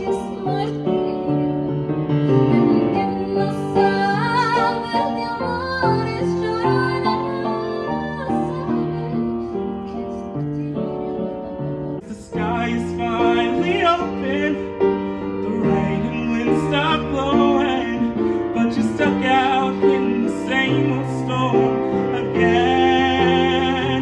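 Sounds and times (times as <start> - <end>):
young man singing with vibrato: 0.0 - 1.8, 2.4 - 9.4, 12.0 - 24.0
piano accompaniment: 0.0 - 24.0.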